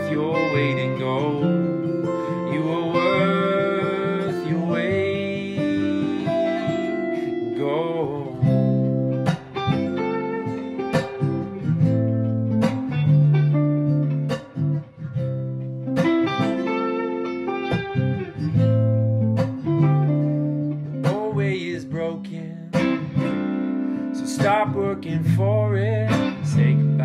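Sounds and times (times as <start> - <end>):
plucked guitar notes: 0.0 - 27.0.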